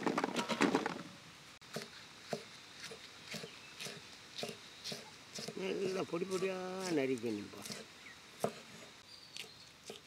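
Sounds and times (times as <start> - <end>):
knife chopping on wood: 1.7 - 7.0, 7.6 - 8.8.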